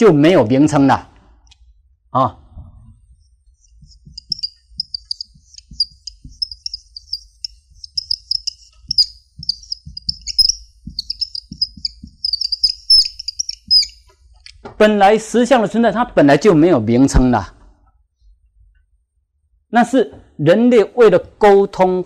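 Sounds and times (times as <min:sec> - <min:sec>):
marker pen squeaking on whiteboard: 0:02.9 - 0:14.3.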